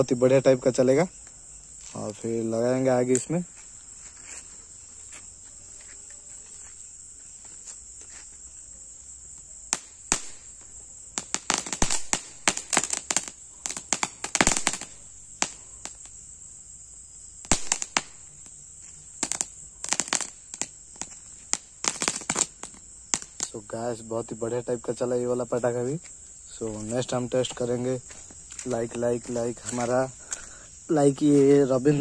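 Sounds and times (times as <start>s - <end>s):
crickets chirping: 0.0s - 32.0s
firecracker crackling pops: 9.7s - 16.2s, 17.4s - 18.6s, 19.2s - 23.8s, 26.5s - 30.5s.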